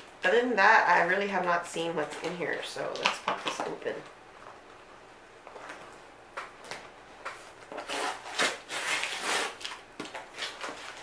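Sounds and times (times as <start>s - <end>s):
cardboard box tearing: 7.7s - 11.0s.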